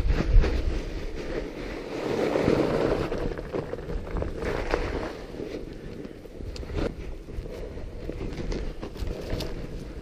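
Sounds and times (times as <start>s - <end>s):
bike tyres crunching over snow: 0.0s - 10.0s
wind rumbling on microphone: 0.0s - 10.0s
bike clicks and knocks: 5.8s - 10.0s.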